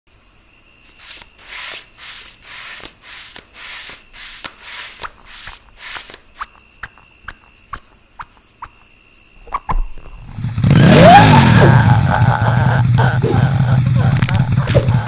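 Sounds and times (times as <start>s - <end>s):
crickets chirping: 0.1s - 10.6s
clicky footfalls with chirp: 2.8s - 10.2s.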